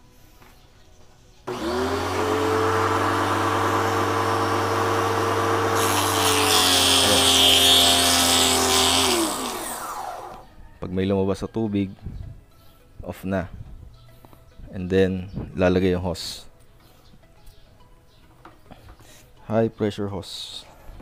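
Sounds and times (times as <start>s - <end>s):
pressure washer motor humming: 1.5s - 10.4s.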